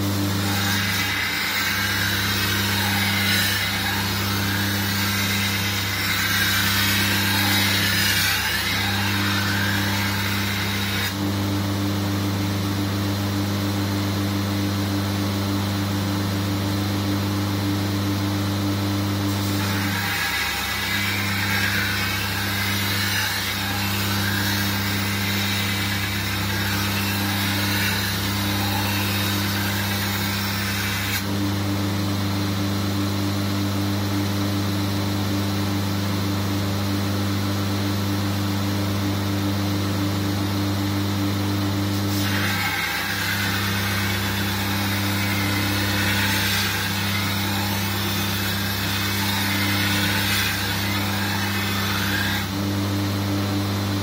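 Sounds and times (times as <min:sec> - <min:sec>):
belt grinder grinding steel: 0:00.0 - 0:11.2, 0:19.2 - 0:31.4, 0:41.7 - 0:52.7
grinder motor hum: 0:00.0 - 0:54.0.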